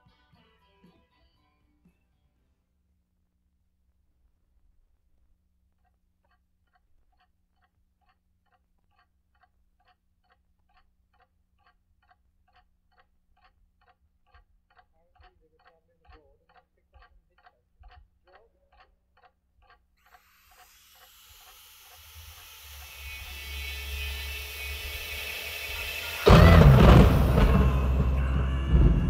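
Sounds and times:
faint even ticking: 5.6s - 28.4s
vinyl playback rumble and hum: 26.2s - 29.0s.

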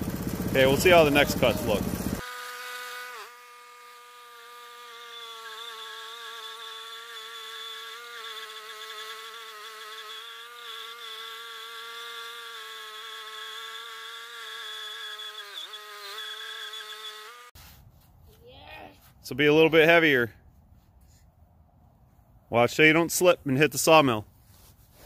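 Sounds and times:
sawmill engine buzzing: 0.0s - 17.6s
band blade sawing log: 0.0s - 18.1s.

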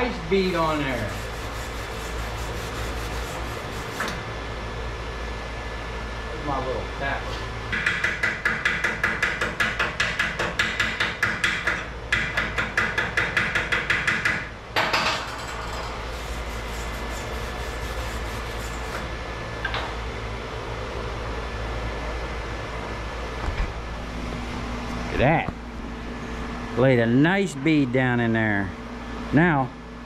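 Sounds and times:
loud welding burst: 15.7s - 19.0s.

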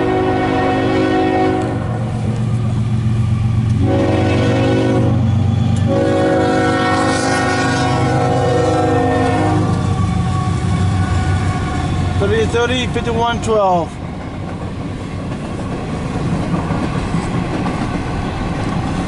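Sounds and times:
locomotive air horn blasts: 0.0s - 2.0s, 3.8s - 11.9s
train low rumble: 0.0s - 19.0s.

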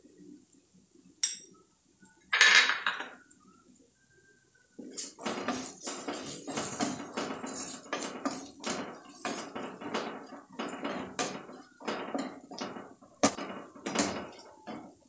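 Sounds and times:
wooden spatula scraping pan: 4.8s - 15.0s.

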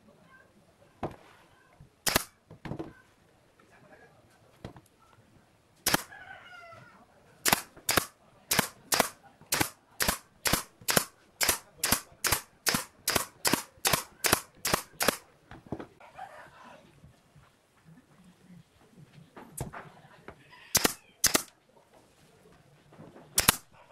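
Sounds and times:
nail gun shooting into wood: 2.0s - 2.4s, 5.8s - 6.1s, 7.4s - 15.2s, 20.8s - 21.5s, 23.4s - 23.7s.

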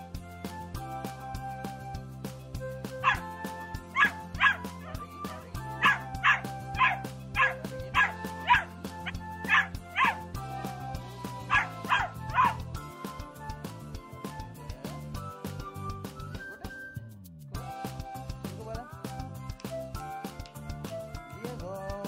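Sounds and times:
background music: 0.0s - 22.0s
puppy yipping: 3.0s - 3.2s, 4.0s - 10.2s, 11.5s - 12.6s.

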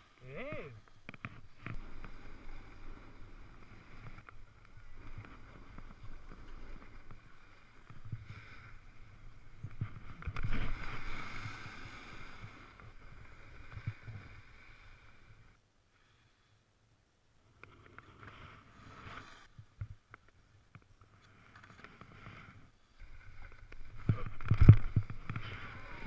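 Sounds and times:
skis scraping over packed snow: 0.4s - 15.4s, 21.3s - 26.0s.

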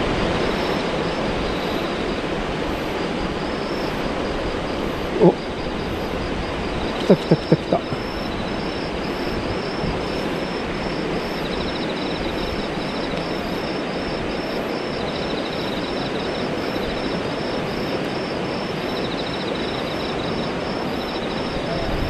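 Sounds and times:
stream rushing: 0.0s - 22.0s.

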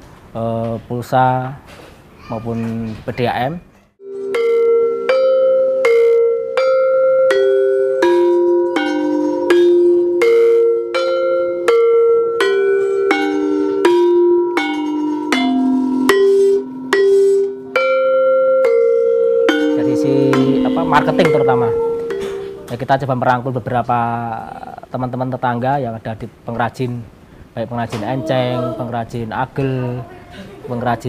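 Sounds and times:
metallophone slow melody: 4.0s - 23.3s.

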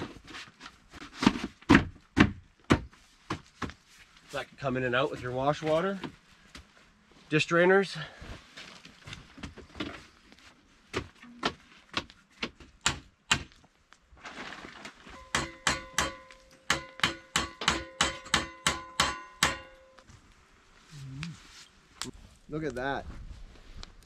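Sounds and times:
hammer striking metal: 15.2s - 20.0s.

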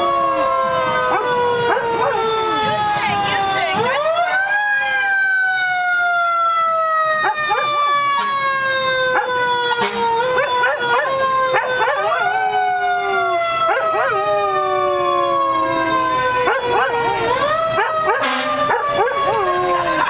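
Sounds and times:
fire truck siren: 0.0s - 20.0s
dog howling: 7.2s - 8.0s, 10.4s - 15.2s, 16.4s - 20.0s.

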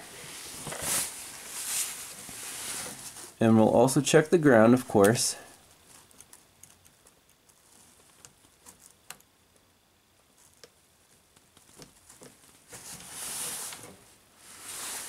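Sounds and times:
glove rustling: 0.1s - 3.5s.

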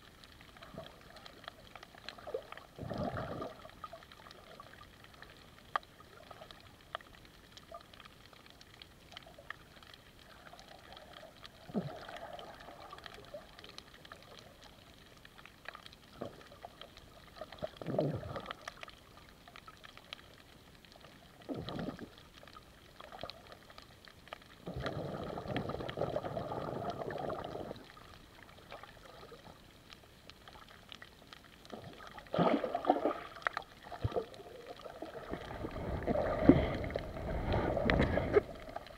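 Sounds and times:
muffled underwater hiss: 0.0s - 38.9s
faint clicks: 3.4s - 24.9s
water swishing past: 30.6s - 38.9s.

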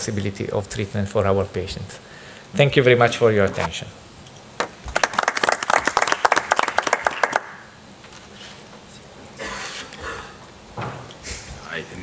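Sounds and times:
people clapping: 4.6s - 7.7s.

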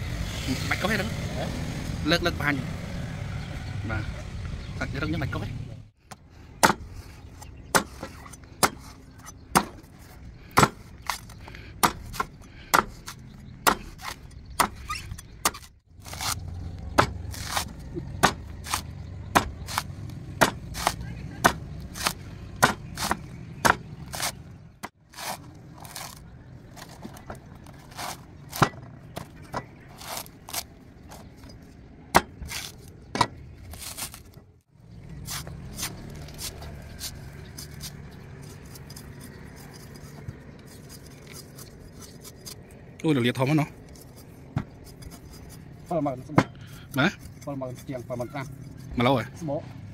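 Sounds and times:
knife chopping coconut husk: 6.6s - 6.9s, 7.7s - 9.9s, 10.5s - 14.8s, 15.4s - 26.2s, 26.8s - 31.4s, 32.1s - 34.4s, 35.1s - 42.7s.

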